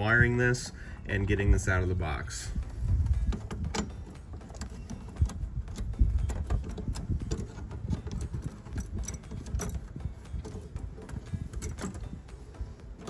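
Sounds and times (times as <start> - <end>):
steady low rumble: 0.0 - 13.0
tools clicking on terminals: 2.6 - 13.0.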